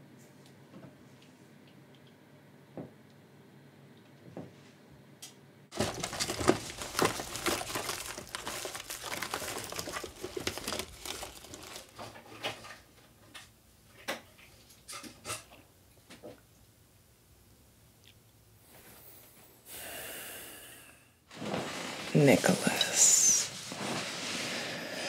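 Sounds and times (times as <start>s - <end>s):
rustling and crinkling: 5.7s - 13.4s, 21.3s - 25.0s.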